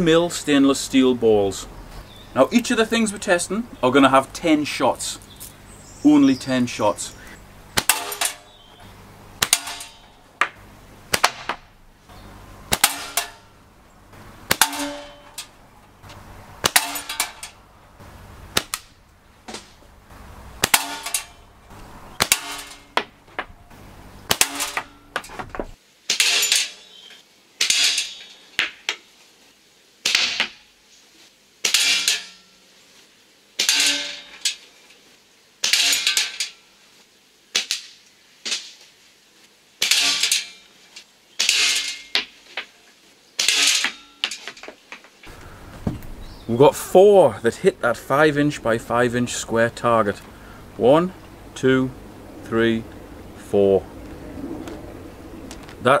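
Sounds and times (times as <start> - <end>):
steel balls striking metal target: 7.7 - 15.6, 16.6 - 17.7, 18.5 - 19.8, 20.5 - 23.6, 24.2 - 28.8, 30.0 - 30.7, 31.6 - 32.6, 33.6 - 34.7, 35.6 - 36.7, 39.8 - 40.8, 41.4 - 42.7, 43.4 - 44.7.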